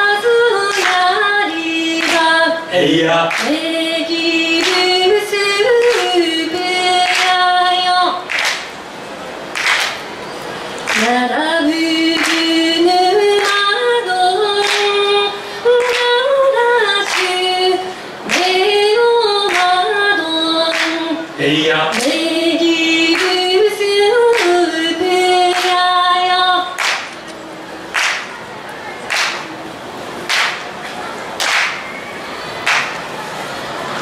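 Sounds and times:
group singing a cappella: 0:00.0 - 0:07.9, 0:11.0 - 0:26.7
handclaps on the beat: 0:00.7 - 0:01.1, 0:02.0 - 0:02.3, 0:03.3 - 0:03.6, 0:04.6 - 0:05.0, 0:05.8 - 0:06.2, 0:07.0 - 0:07.4, 0:08.3 - 0:08.7, 0:09.5 - 0:10.0, 0:10.9 - 0:11.2, 0:12.1 - 0:12.6, 0:13.4 - 0:13.7, 0:14.6 - 0:15.0, 0:15.8 - 0:16.2, 0:17.0 - 0:17.4, 0:18.3 - 0:18.6, 0:19.5 - 0:19.9, 0:20.7 - 0:21.1, 0:21.9 - 0:22.2, 0:23.1 - 0:23.4, 0:24.3 - 0:24.6, 0:25.5 - 0:25.8, 0:26.8 - 0:27.2, 0:27.9 - 0:28.3, 0:29.1 - 0:29.5, 0:30.3 - 0:30.7, 0:31.4 - 0:31.9, 0:32.6 - 0:33.0.

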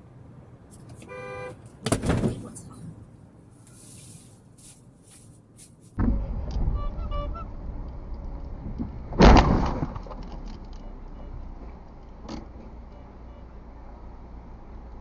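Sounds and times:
faint road noise: 0:00.0 - 0:15.0
car collision thump: 0:01.8 - 0:02.4, 0:09.1 - 0:10.0.

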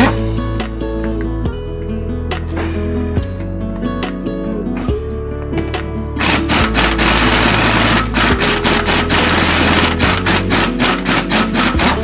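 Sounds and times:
impact wrench hammering: 0:06.2 - 0:12.0.

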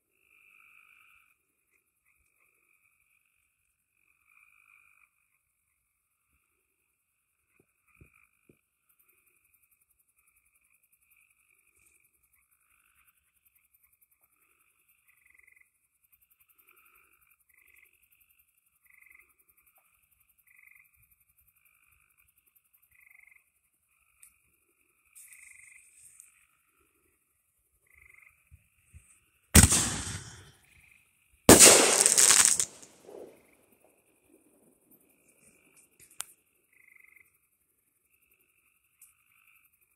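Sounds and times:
frogs calling faintly: 0:00.0 - 0:39.9
firework bursting bang: 0:29.6 - 0:30.5, 0:31.5 - 0:33.3
firework crackling: 0:29.6 - 0:30.5, 0:31.5 - 0:33.3
firework launching bang: 0:29.6 - 0:30.5, 0:31.5 - 0:33.3.

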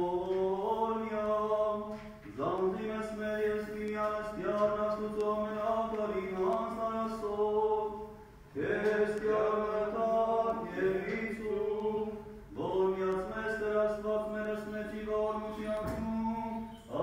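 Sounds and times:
man singing chant: 0:00.0 - 0:08.0, 0:08.6 - 0:17.0.

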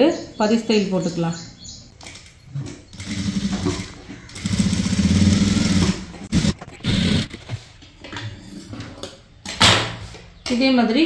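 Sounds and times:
sewing machine stitching: 0:03.0 - 0:07.5.

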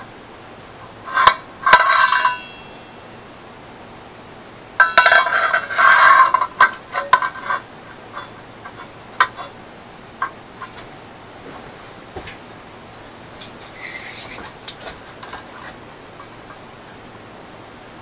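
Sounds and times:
metal scraping and ringing: 0:00.8 - 0:03.3, 0:04.8 - 0:09.6, 0:13.0 - 0:17.0
metal clinks and taps: 0:13.4 - 0:16.6.

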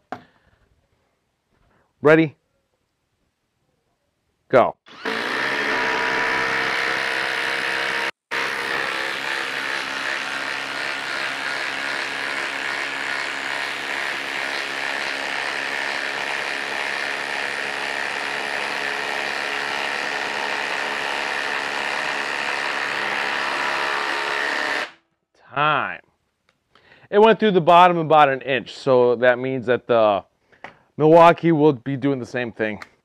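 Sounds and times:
impact driver hammering: 0:04.9 - 0:25.0.

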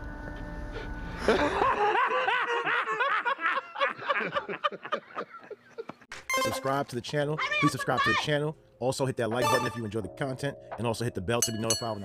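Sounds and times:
man laughing hard: 0:01.2 - 0:06.0.

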